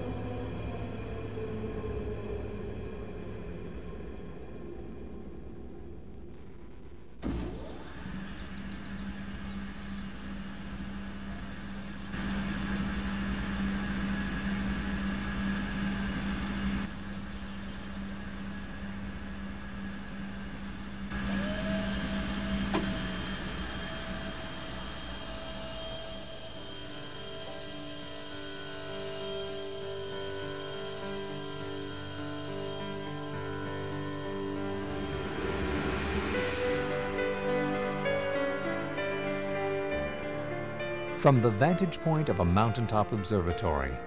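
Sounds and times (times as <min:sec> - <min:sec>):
electric motors humming: 0:07.2 - 0:36.5.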